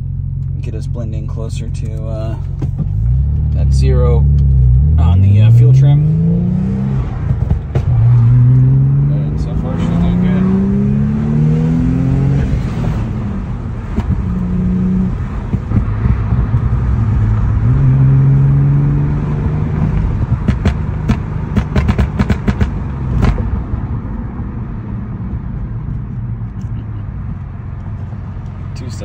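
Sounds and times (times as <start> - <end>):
car engine revving: 0.0 - 29.0
exhaust pops and crackles: 0.4 - 3.6, 7.2 - 8.7, 13.8 - 14.5, 15.3 - 16.9, 19.8 - 23.6.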